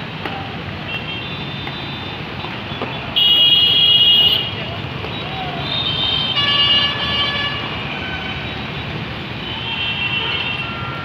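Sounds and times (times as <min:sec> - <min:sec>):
passing vehicles: 0:00.0 - 0:11.0
vehicle horns: 0:03.2 - 0:04.6, 0:05.6 - 0:08.6, 0:09.4 - 0:11.0.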